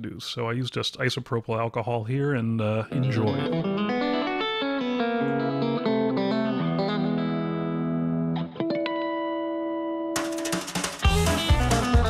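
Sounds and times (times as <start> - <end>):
guitar background music: 2.9 - 12.0.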